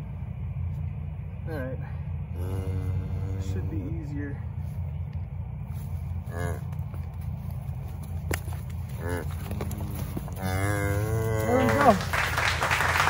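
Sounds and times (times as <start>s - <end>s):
steady low rumble: 0.0s - 13.0s
cattle bawling: 2.2s - 4.2s, 6.1s - 12.2s.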